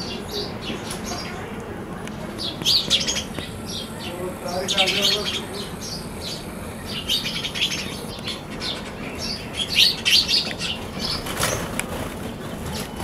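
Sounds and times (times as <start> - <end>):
sparrows chirping: 0.0 - 13.0
wing flutter: 10.0 - 13.0.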